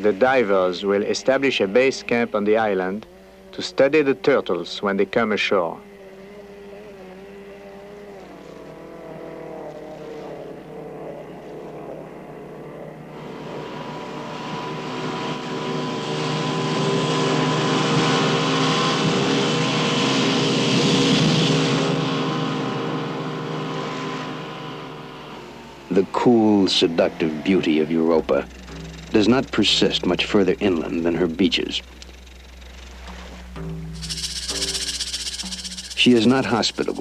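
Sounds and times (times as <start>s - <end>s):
motorboat engine running: 24.8s - 37.0s
water rushing hiss: 34.0s - 37.0s.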